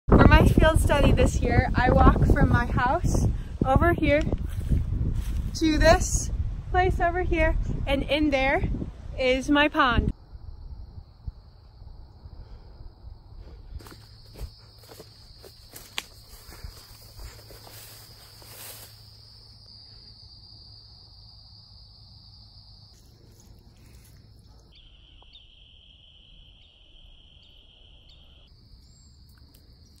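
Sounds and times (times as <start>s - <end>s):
crickets and insects trilling: 9.0s - 30.0s.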